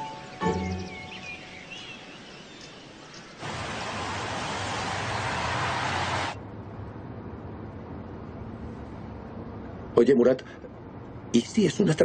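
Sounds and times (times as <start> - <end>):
birds chirping: 0.0 - 6.3
loud rushing noise: 3.4 - 6.4.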